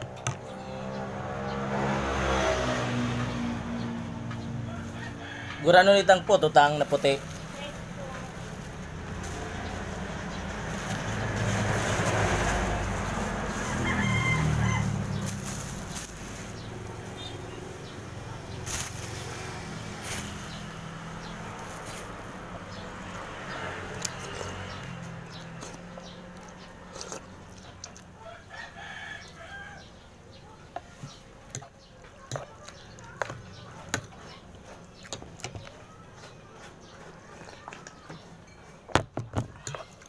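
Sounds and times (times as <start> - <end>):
rooster crowing: 4.6 - 6.3, 13.5 - 15.4, 28.2 - 30.0.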